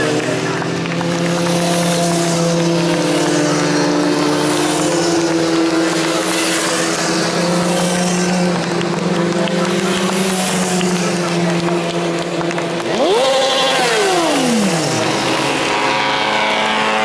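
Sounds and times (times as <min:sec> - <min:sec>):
motorcycle engines at high revs: 0:00.0 - 0:17.0.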